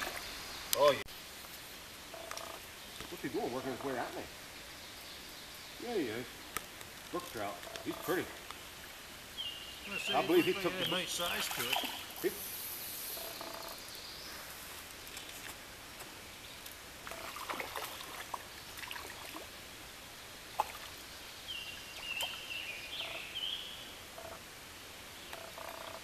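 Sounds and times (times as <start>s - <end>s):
birds calling: 0.0s - 1.0s, 2.1s - 15.5s, 20.6s - 24.4s
stream water running: 0.0s - 26.0s
faint clicks: 6.5s - 8.6s.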